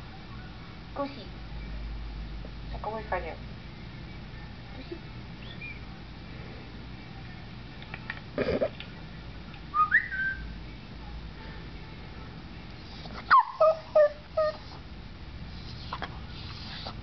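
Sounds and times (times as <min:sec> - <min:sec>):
dog whining: 0:13.2 - 0:14.8
dog howling yips: 0:13.3 - 0:14.8.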